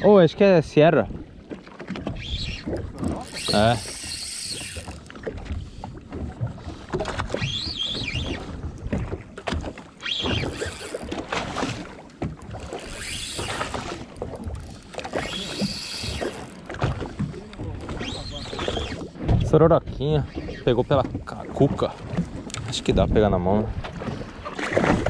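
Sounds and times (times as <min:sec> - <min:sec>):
water against boat hull: 0:00.0 - 0:25.0
fishing reel whirring: 0:02.1 - 0:05.2, 0:09.9 - 0:11.8, 0:12.4 - 0:19.0.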